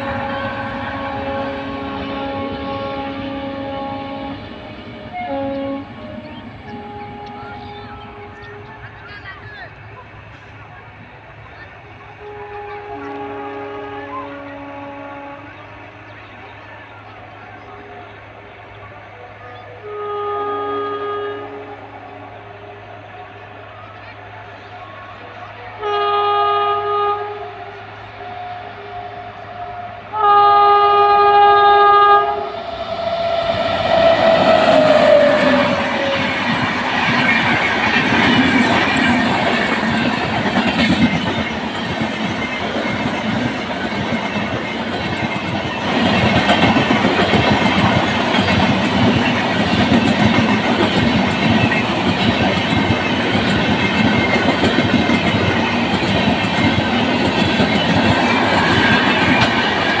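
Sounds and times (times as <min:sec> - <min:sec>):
train horn: 0:00.0 - 0:08.8, 0:12.2 - 0:16.1, 0:19.0 - 0:24.0, 0:24.8 - 0:37.3
train wheels clacking on rails: 0:32.5 - 1:00.0.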